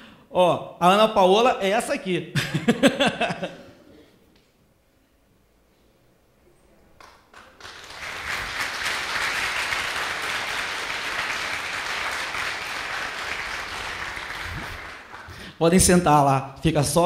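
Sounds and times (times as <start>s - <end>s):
congregation applauding: 7.0s - 15.6s.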